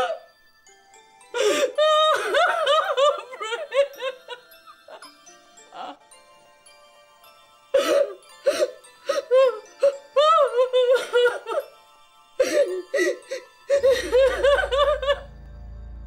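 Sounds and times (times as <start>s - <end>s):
woman wailing and sobbing: 0.0s - 0.2s, 1.4s - 6.0s, 7.8s - 11.8s, 12.4s - 15.3s
low music drone: 12.4s - 16.0s.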